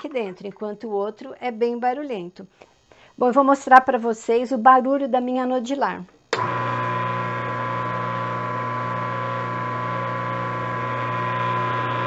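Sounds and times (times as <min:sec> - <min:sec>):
pasta machine motor humming: 0:06.4 - 0:12.0.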